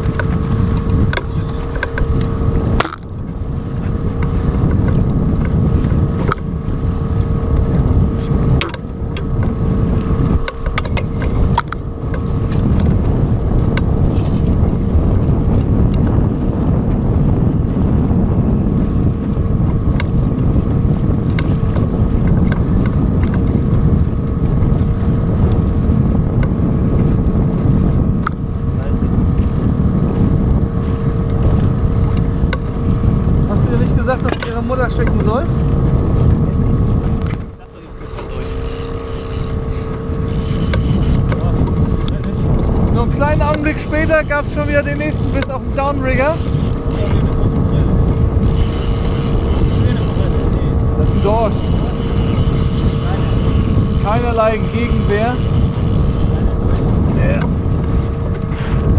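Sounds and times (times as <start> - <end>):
sharp clicks and knocks: 0.0 - 3.2, 10.4 - 12.9, 34.2 - 35.2, 37.2 - 39.6, 40.3 - 42.4
outboard motor humming: 0.0 - 58.9
wind rumbling on microphone: 0.0 - 58.9.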